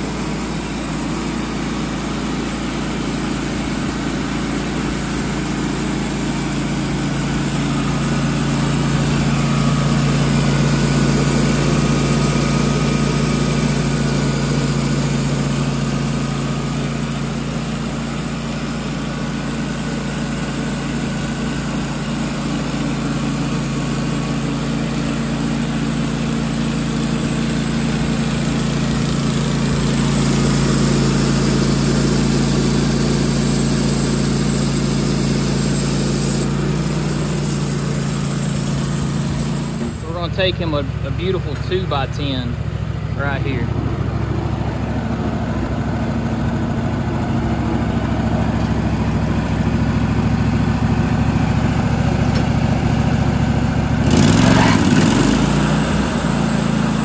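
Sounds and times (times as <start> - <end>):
band sawmill cutting wood: 0.0 - 42.6, 53.9 - 57.0.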